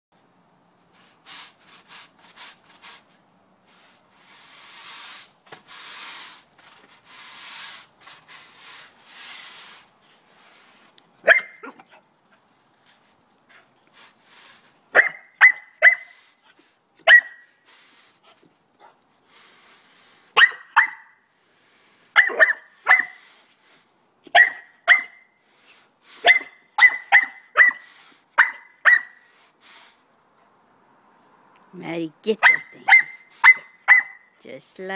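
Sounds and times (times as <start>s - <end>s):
puppy barking: 11.2s - 11.8s, 15.0s - 16.1s, 17.0s - 17.4s, 20.4s - 21.1s, 22.2s - 23.2s, 24.3s - 25.2s, 26.2s - 27.8s, 28.4s - 29.2s, 32.4s - 34.2s.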